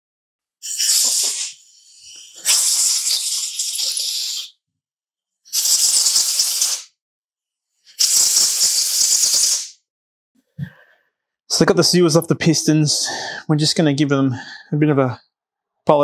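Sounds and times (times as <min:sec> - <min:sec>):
compressed air blow gun hissing: 0:00.6 - 0:04.5, 0:05.5 - 0:06.9, 0:07.9 - 0:09.8.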